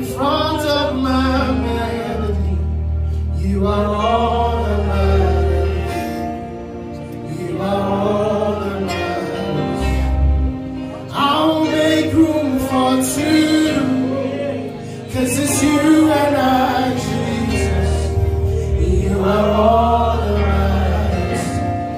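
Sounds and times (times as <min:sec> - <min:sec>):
person singing into a microphone: 0:00.0 - 0:06.4, 0:10.9 - 0:21.9
keyboard accompaniment: 0:00.0 - 0:21.9.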